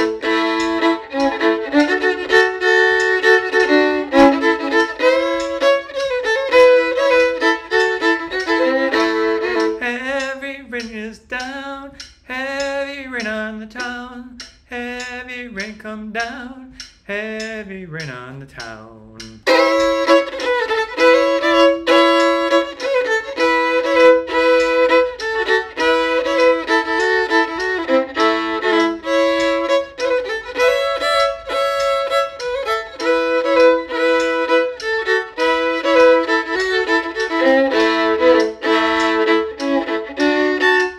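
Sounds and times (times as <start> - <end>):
solo fiddle tune: 0.0 - 10.4, 19.4 - 40.9.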